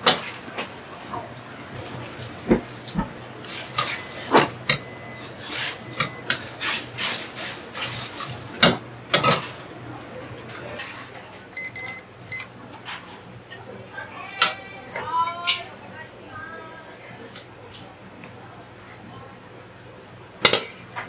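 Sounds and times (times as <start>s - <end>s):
dishes and utensils clattering: 2.0s - 9.6s.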